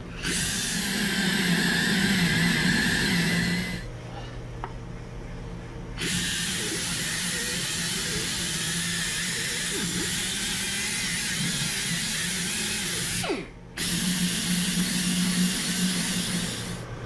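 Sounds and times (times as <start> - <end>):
power tool cleaning wheel spinning: 6.0 - 13.2, 13.8 - 16.8.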